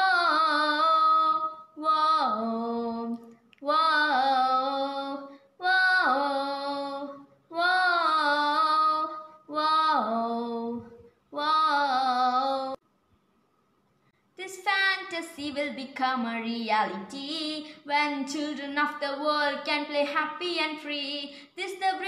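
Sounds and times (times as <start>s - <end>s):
girl singing unaccompanied: 0.0s - 12.8s, 14.4s - 22.0s.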